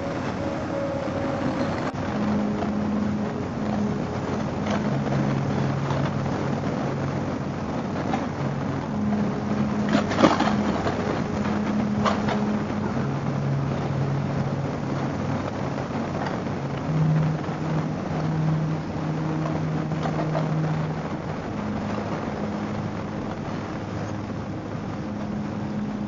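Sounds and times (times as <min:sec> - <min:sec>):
wind and road noise: 0:00.0 - 0:26.0.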